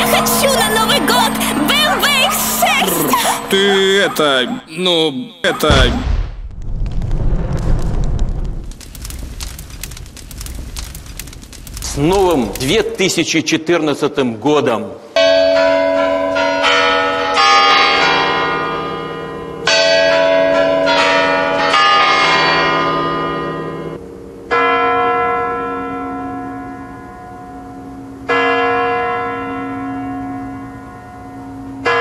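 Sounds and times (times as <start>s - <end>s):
clock bell striking: 0.0s - 4.2s.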